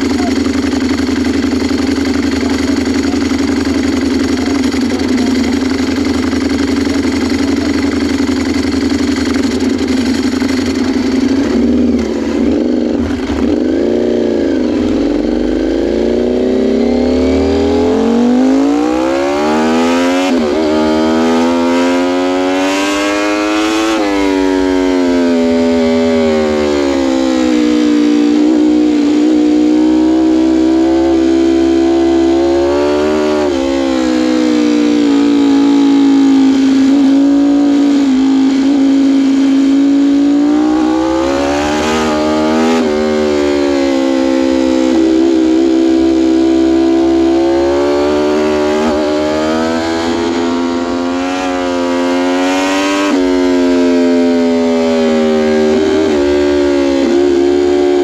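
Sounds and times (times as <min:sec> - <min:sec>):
motorcycle engine revving: 0:00.0 - 0:58.0.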